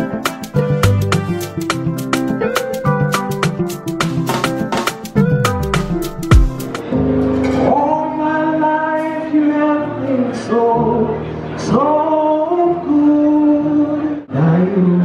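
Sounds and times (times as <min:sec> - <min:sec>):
soft accompaniment: 0:00.0 - 0:14.1.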